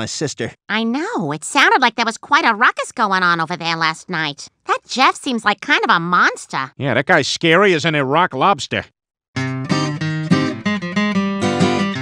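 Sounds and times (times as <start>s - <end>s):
acoustic guitar strumming: 9.4s - 12.0s.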